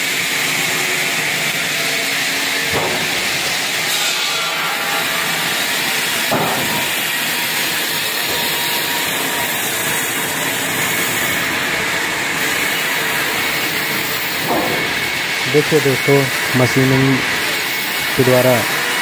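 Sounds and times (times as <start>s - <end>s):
sawmill machinery running: 0.0s - 19.0s.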